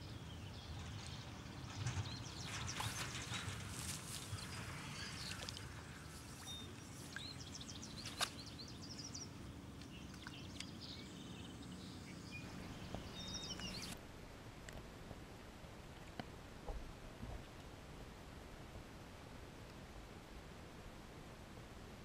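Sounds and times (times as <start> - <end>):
small birds chirping and trilling: 0.0 - 14.0.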